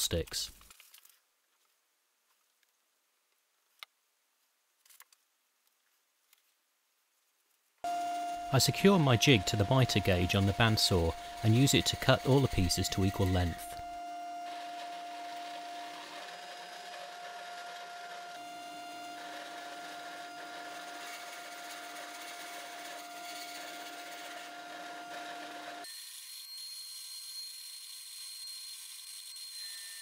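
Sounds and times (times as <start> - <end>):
bandsaw running: 7.9 - 30.0.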